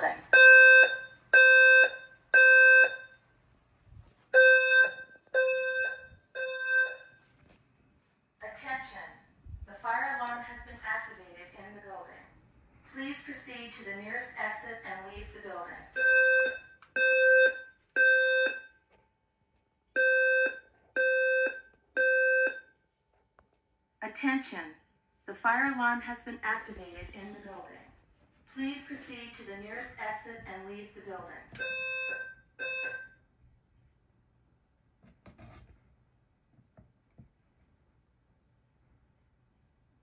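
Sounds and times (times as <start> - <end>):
pulsed fire alarm tone: 0.3 - 3.2, 4.3 - 7.3, 15.9 - 18.8, 20.0 - 22.8, 31.6 - 33.2.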